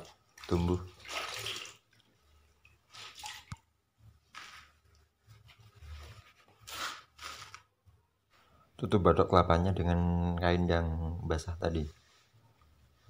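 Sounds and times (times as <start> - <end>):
wet cloth rustling: 0.2 - 8.6.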